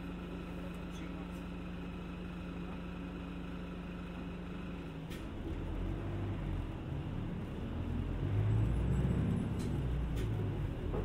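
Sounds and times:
bus engine: 0.0 - 11.0.

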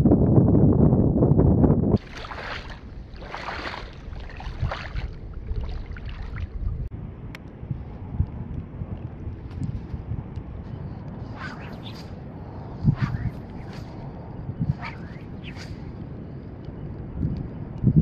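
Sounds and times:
wind buffeting microphone: 0.0 - 18.0
water sloshing from wading: 2.0 - 6.9.

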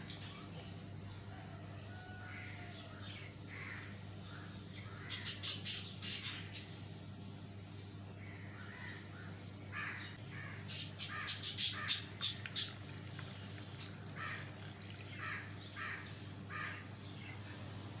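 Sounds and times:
crows cawing: 2.1 - 5.4, 8.2 - 17.0
faint bird calls: 8.2 - 17.7.

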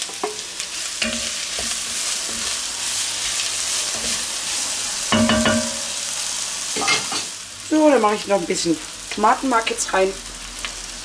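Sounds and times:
vegetables sizzling in butter: 0.0 - 11.0
wooden spoon knocking on pot: 5.1 - 6.0.

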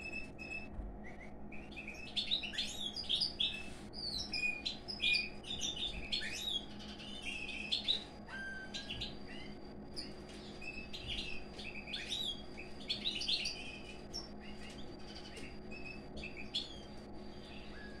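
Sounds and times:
birds chirping and twittering: 0.0 - 18.0
faint steady hum: 0.0 - 18.0.

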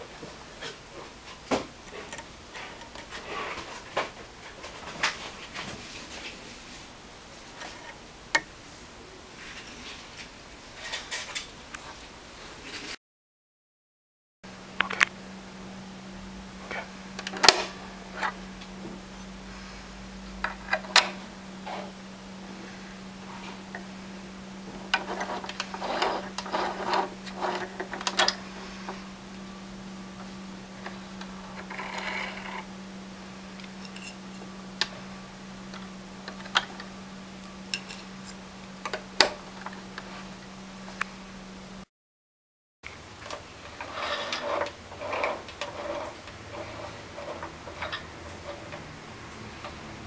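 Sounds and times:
steady low hum: 14.5 - 41.9, 42.9 - 50.0.

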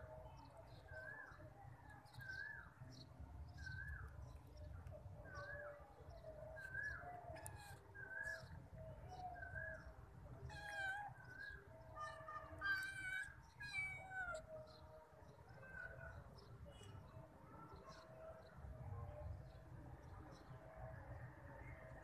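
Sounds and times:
small bird calling: 6.6 - 14.6
cat meowing: 10.5 - 11.2, 12.5 - 14.4.

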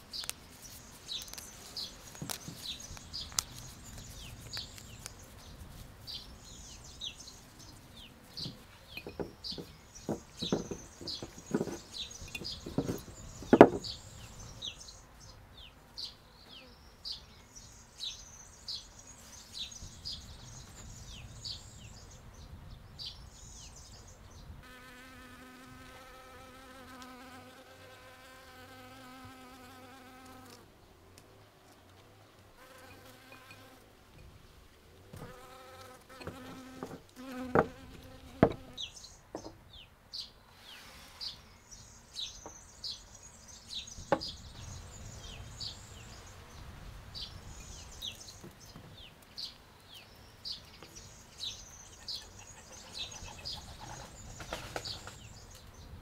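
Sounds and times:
honeybee buzzing: 7.1 - 14.3, 24.6 - 30.7, 32.6 - 33.8, 35.1 - 39.0.

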